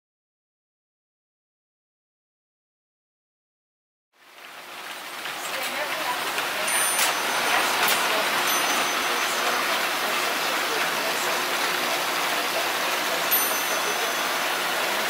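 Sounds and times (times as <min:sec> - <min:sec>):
toy trains whirring and rattling: 0:04.2 - 0:15.0.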